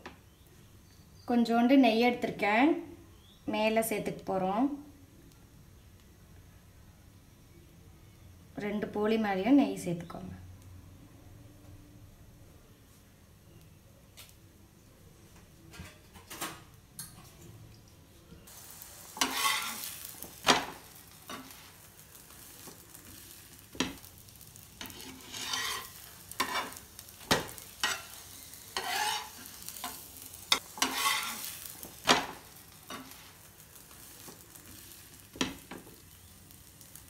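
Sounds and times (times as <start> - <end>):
frying sizzle: 15.8 - 37.0
metal spatula scraping and tapping: 19.2 - 19.9, 21.3 - 21.6, 24.8 - 33.3.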